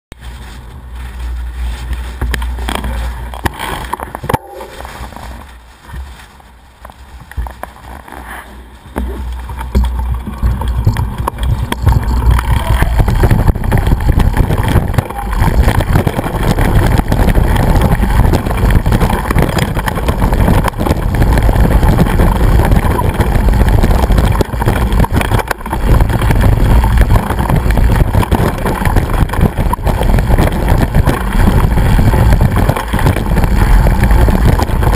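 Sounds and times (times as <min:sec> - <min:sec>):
bike rattling over rough track: 0:00.1 - 0:34.9
wind buffeting microphone: 0:08.6 - 0:34.9.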